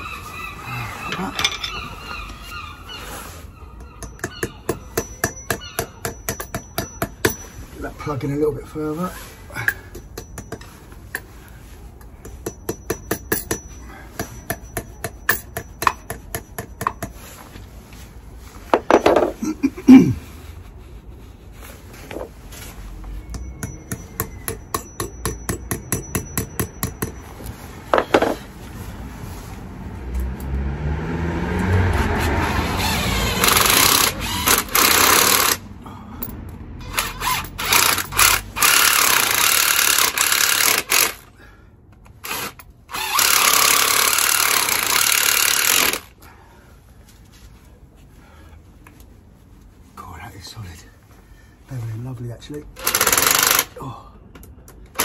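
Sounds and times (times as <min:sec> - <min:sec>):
cordless drill running in bursts: 0:42.2 - 0:46.1, 0:52.8 - 0:53.7.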